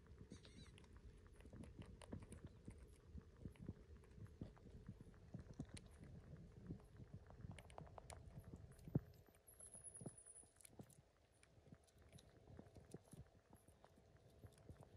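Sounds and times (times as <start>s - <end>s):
faint clicks and taps: 0.0s - 14.9s.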